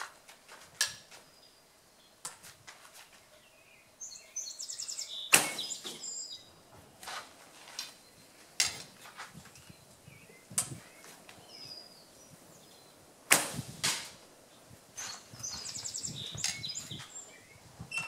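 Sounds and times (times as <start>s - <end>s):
arrow clicks and knocks: 5.3s - 6.0s, 13.3s - 14.2s.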